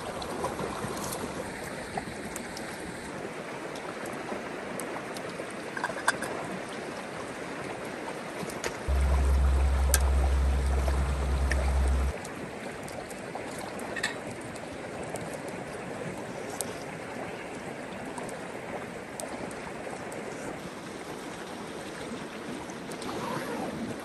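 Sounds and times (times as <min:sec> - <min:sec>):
deep low hum: 0:08.9 - 0:12.1
faint clicks: 0:08.9 - 0:12.1.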